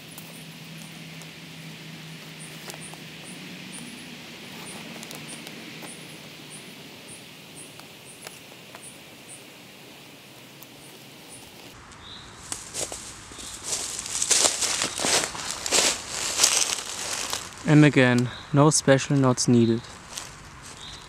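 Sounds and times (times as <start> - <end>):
steady hiss: 0.0 - 21.0
cord knotting clicks and rustles: 12.4 - 17.7.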